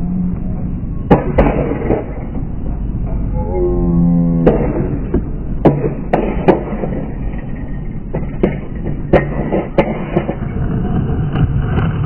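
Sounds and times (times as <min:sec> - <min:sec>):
low rumble of skateboards: 0:00.0 - 0:12.0
sharp skateboard clacks: 0:04.4 - 0:07.4, 0:08.1 - 0:12.0.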